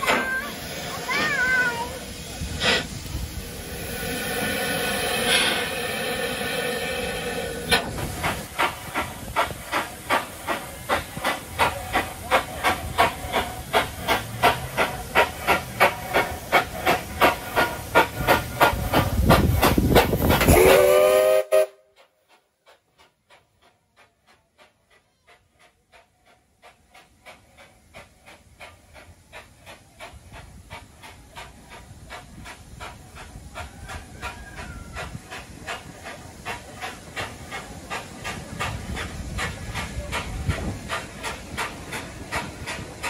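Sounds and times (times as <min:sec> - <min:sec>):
steam hissing: 0:00.0 - 0:43.0
steam locomotive chuffing: 0:00.0 - 0:43.0
steam whistle blast: 0:20.5 - 0:22.0.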